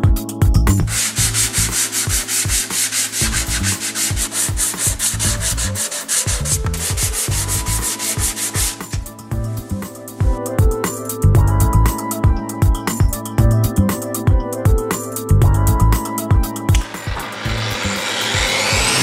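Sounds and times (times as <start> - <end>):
electronic music with steady beat: 0.0 - 19.0
sanding strokes hissing: 0.9 - 9.0.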